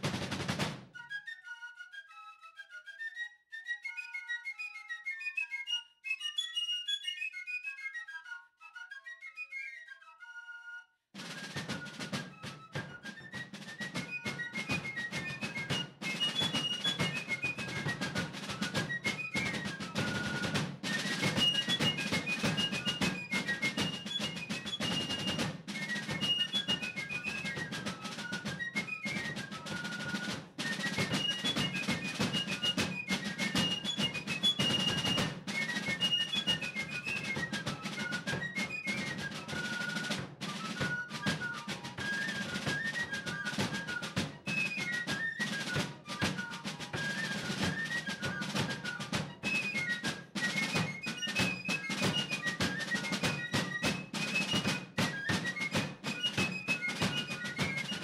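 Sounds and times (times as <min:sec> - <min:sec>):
fast snare drum rhythm: 0:00.0 - 0:00.9, 0:11.2 - 0:58.0.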